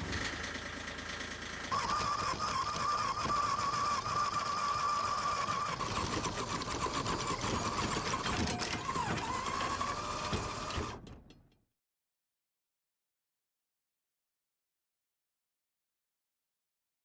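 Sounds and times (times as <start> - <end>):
electric windlass whining: 1.7 - 11.0.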